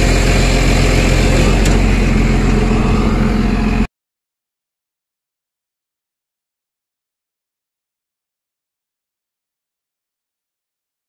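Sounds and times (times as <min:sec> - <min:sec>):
wheel loader diesel engine running: 0:00.0 - 0:03.9.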